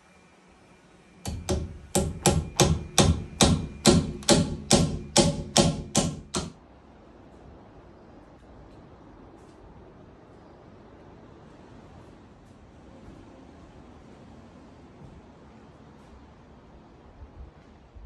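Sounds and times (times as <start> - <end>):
hammer blows on log: 1.3 - 6.6.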